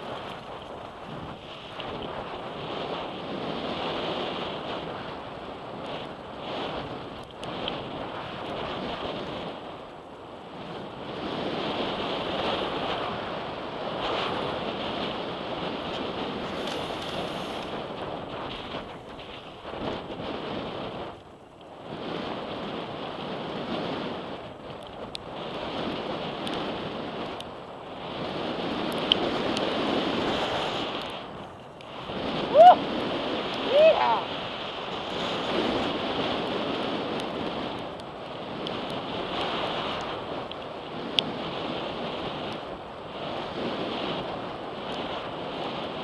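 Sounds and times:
bike tyres on gravel: 0:00.0 - 0:46.0
wind on camera microphone: 0:00.0 - 0:46.0
person shouting: 0:32.5 - 0:32.8, 0:33.7 - 0:34.3.

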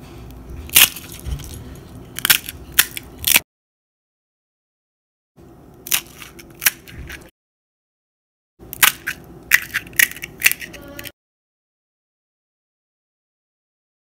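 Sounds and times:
crisp shells cracking: 0:00.7 - 0:01.6, 0:02.2 - 0:03.4.

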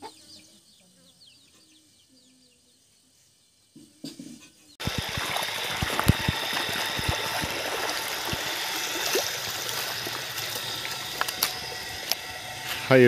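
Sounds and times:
stream babbling over stones: 0:04.8 - 0:12.2.

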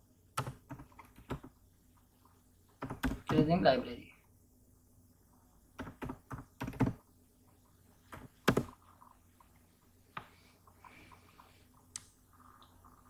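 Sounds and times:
keyboard typing: 0:00.4 - 0:01.6, 0:02.7 - 0:03.4, 0:05.8 - 0:07.0, 0:08.1 - 0:09.5.

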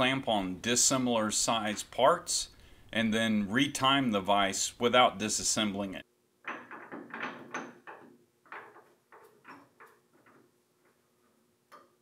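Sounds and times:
metal clicks and knocks: 0:06.4 - 0:12.0.

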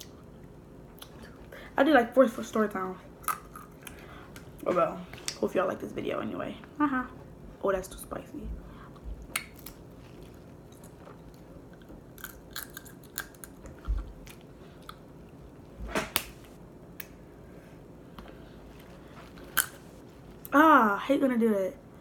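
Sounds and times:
chewing: 0:08.9 - 0:15.1
crab shell cracking: 0:09.3 - 0:09.8, 0:11.8 - 0:15.0.

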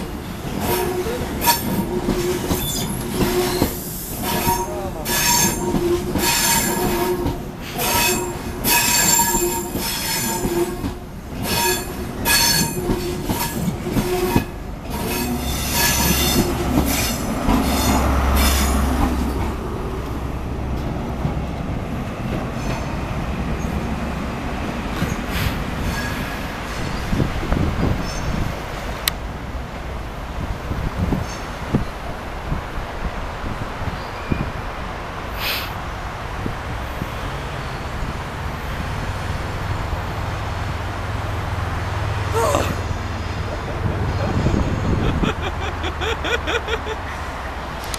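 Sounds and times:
train rumble: 0:00.0 - 0:47.9
train wheels squealing: 0:00.6 - 0:07.0, 0:07.7 - 0:10.7, 0:11.4 - 0:18.8, 0:22.6 - 0:23.0, 0:25.0 - 0:27.2, 0:28.0 - 0:28.5, 0:31.2 - 0:31.6, 0:34.0 - 0:34.6, 0:44.1 - 0:45.2.

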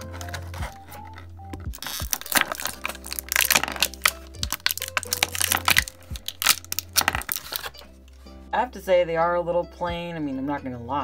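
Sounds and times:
plastic packaging crinkling: 0:00.0 - 0:07.9
background music with bass line: 0:00.0 - 0:11.0.

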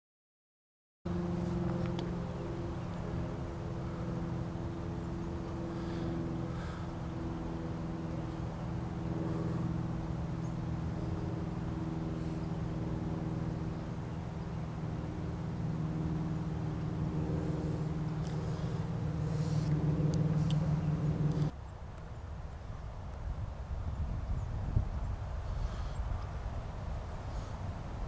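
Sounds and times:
engine humming: 0:01.1 - 0:22.2.

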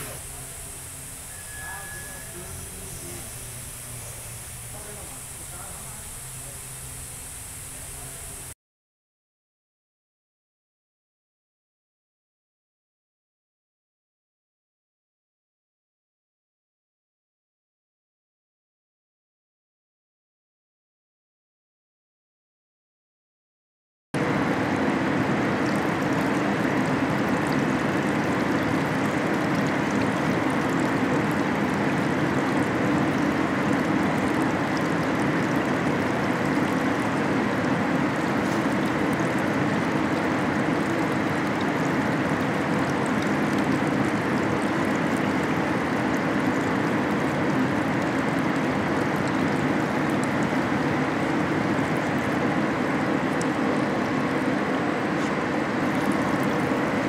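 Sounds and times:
paint booth machine noise: 0:00.0 - 0:08.5.

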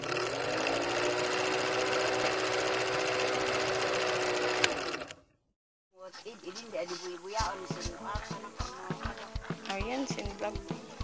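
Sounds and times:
film projector clattering: 0:00.0 - 0:05.2.

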